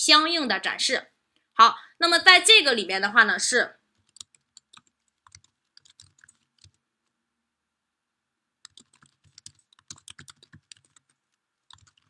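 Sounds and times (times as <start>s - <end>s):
faint keyboard typing: 3.9s - 7.2s, 8.6s - 12.0s.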